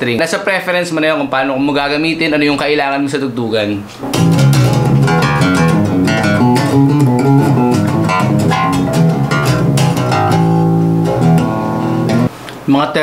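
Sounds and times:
bass guitar plucked notes: 4.0s - 12.3s.

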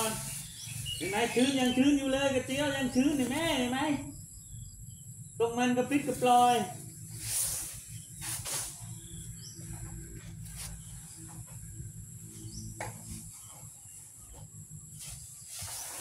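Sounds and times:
crickets droning: 0.0s - 16.0s
elephant hissing puffs: 7.1s - 9.0s, 15.0s - 16.0s
elephant trunk swinging: 7.1s - 9.0s, 12.8s - 16.0s.

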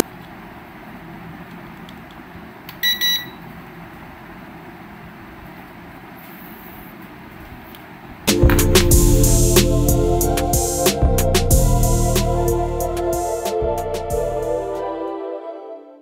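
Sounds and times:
faint room hiss: 0.0s - 11.2s
high-pitched remote control beeps: 2.8s - 3.4s.

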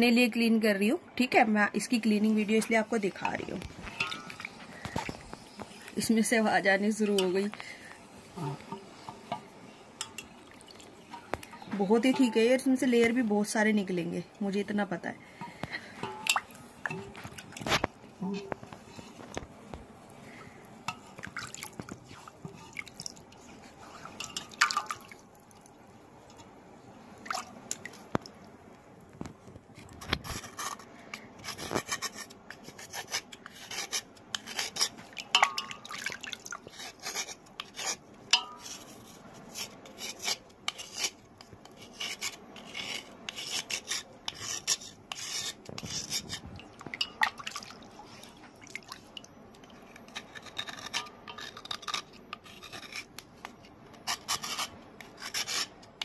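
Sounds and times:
water dripping and splashing: 3.9s - 5.7s, 10.0s - 11.6s, 20.9s - 23.4s, 24.0s - 25.7s, 27.2s - 28.5s, 35.0s - 36.8s, 46.6s - 50.0s
stone scraping: 50.0s - 53.1s.

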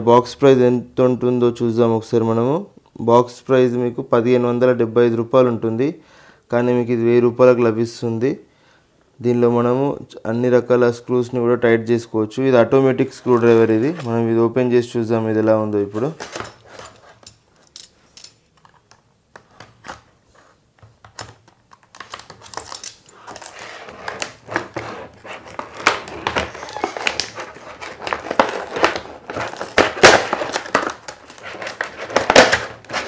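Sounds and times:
plastic packaging crackling: 21.4s - 33.0s.

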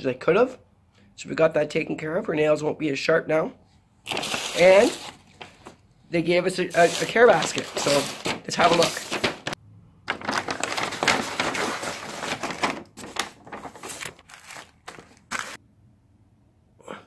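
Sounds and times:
paper and plastic rustling: 4.1s - 5.8s, 6.5s - 15.6s.

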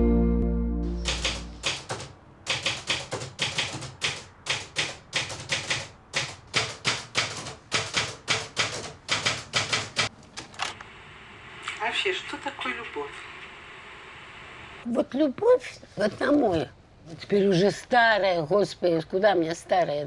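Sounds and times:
music chord: 0.0s - 1.6s
typewriter key strikes: 1.0s - 10.1s.

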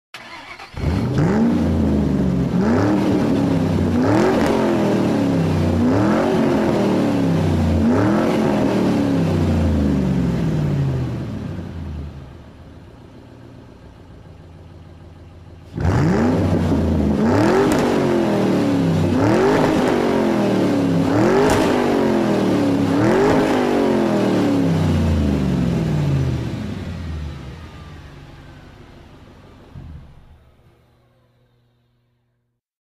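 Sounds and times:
engine revving: 0.2s - 12.3s, 15.6s - 29.1s
engine idling: 9.7s - 17.3s, 24.7s - 32.4s.

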